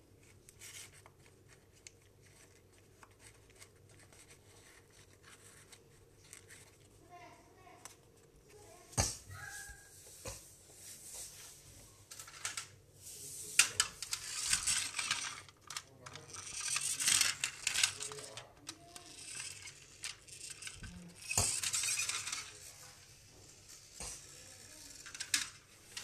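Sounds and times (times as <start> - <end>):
plastic toy rustling: 0.2 - 7.2, 12.1 - 26.0
plastic toy clicking: 14.0 - 22.5, 24.1 - 25.6.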